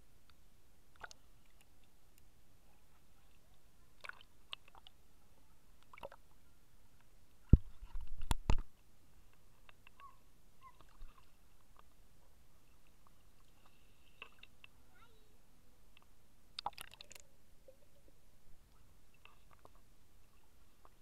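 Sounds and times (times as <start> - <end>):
muffled thumps: 7.5 - 8.7.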